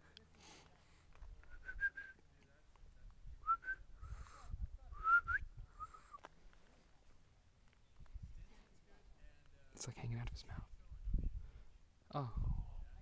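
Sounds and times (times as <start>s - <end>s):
soft whistled notes: 1.5s - 2.2s, 5.0s - 6.3s.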